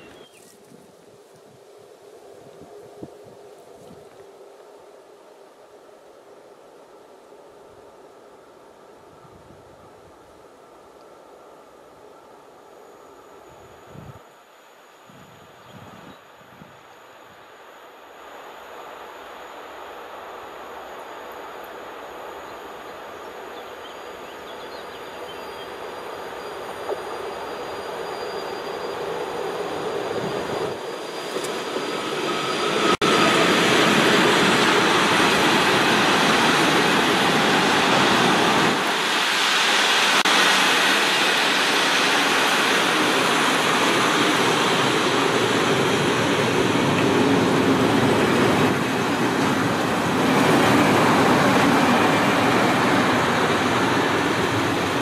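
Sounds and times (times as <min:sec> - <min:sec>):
freight train passing: 0:16.8 - 0:55.0.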